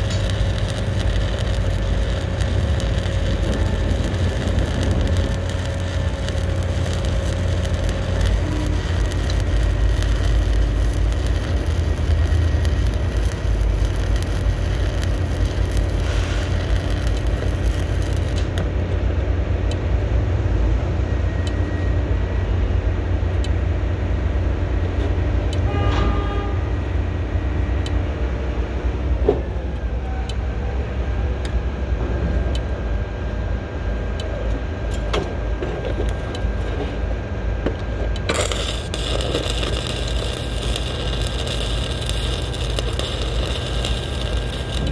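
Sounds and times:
welding arc crackling: 0.0 - 19.2, 34.9 - 44.9
low machinery rumble: 0.0 - 44.9.

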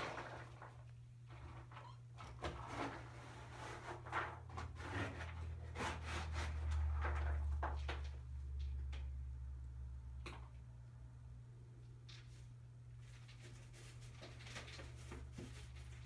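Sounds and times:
kittens' claws scratching on rug: 13.0 - 16.0.

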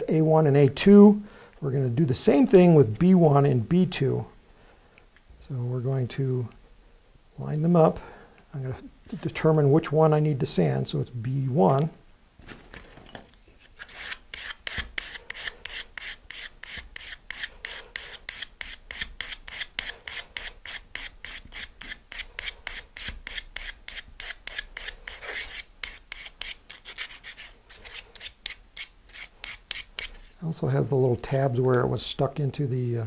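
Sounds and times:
plywood sanded by hand: 13.8 - 30.2.

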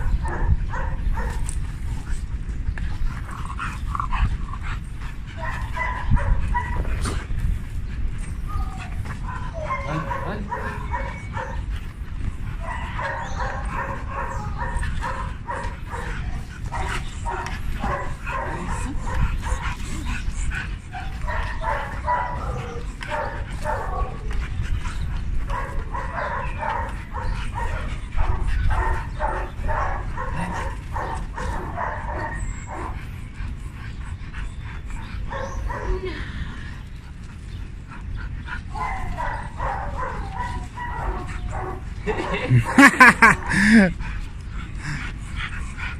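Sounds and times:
steady low rumble: 0.0 - 9.7, 10.5 - 42.8
dogs barking and yipping: 0.0 - 45.9.

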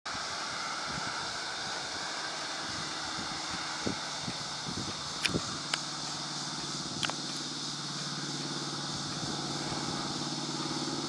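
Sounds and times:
engine running steadily: 0.1 - 11.0
sharp click: 7.0 - 7.4.

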